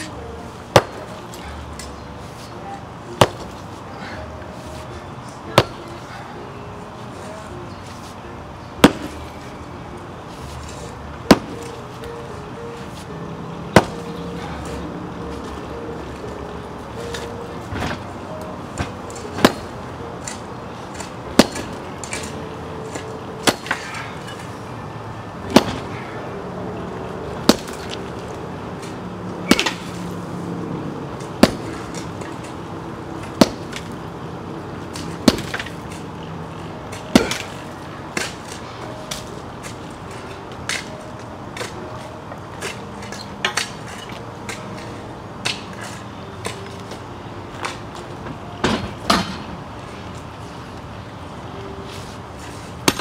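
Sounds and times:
sledgehammer hitting concrete: 8.8 - 9.1, 19.4 - 19.7, 20.9 - 22.3, 23.4 - 24.0, 27.4 - 27.8, 29.5 - 29.9, 31.4 - 32.0, 35.2 - 35.7, 37.1 - 37.6.

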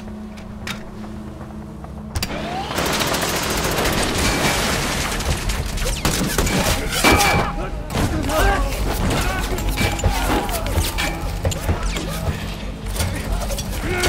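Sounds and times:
low steady hum: 0.0 - 6.2
rotary cannon firing: 2.1 - 8.4.

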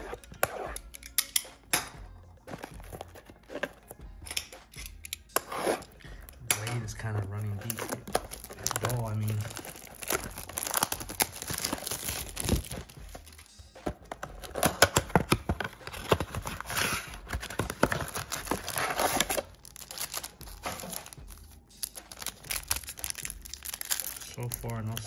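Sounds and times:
plastic wrap crinkling and tearing: 6.7 - 13.5, 14.4 - 25.0.

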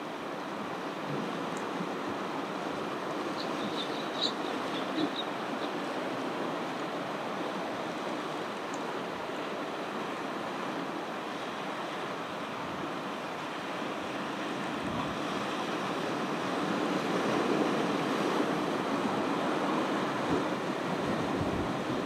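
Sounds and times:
ocean surf washing on beach: 0.0 - 22.0
wind buffeting microphone: 20.1 - 22.0.

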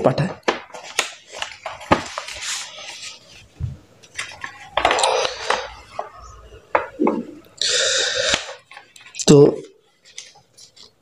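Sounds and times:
paper rustling and crinkling: 0.2 - 6.2, 9.9 - 11.0.

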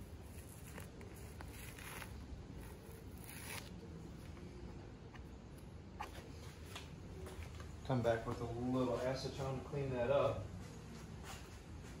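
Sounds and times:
tape ripping off: 0.2 - 3.8.

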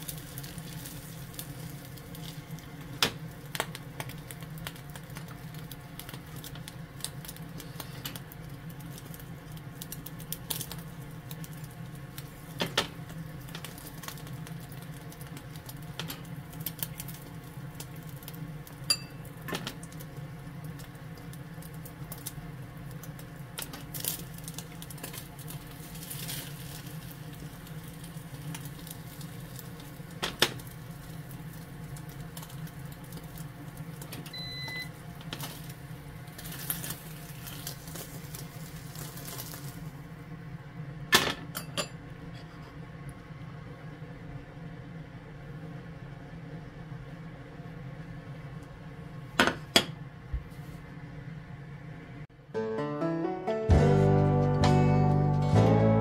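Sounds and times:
egg crackling in a pan: 0.0 - 40.3.

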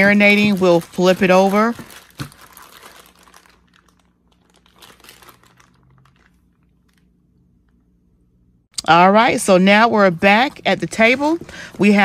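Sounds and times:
plastic bag crinkling: 0.0 - 7.1.

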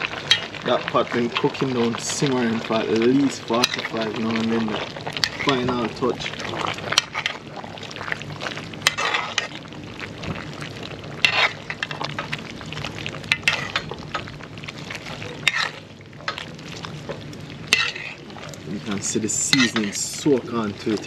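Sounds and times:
stew sizzling: 0.0 - 21.0
spoon scraping and knocking pot: 11.2 - 12.0, 15.4 - 15.8, 17.7 - 18.2, 19.5 - 20.0.

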